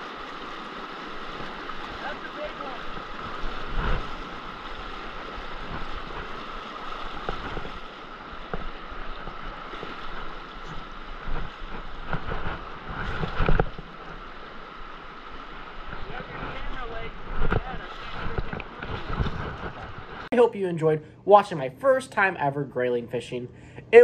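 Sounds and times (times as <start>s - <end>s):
creek water rushing over rocks: 0.0s - 20.3s
splashes or knocks: 1.2s - 14.3s.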